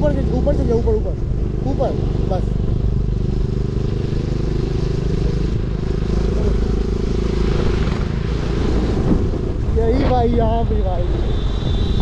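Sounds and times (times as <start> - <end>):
motorcycle engine running: 0.0 - 9.7
wind rush on microphone: 6.4 - 12.0.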